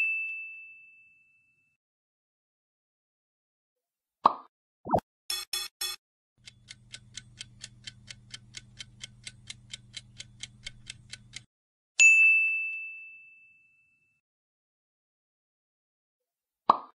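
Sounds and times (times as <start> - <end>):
rapid clock ticks: 5.3 - 11.5.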